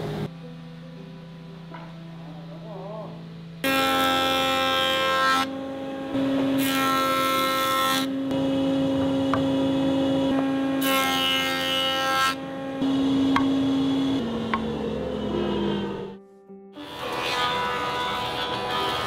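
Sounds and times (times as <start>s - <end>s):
wood planer whining: 3.6s - 16.2s, 16.8s - 19.0s.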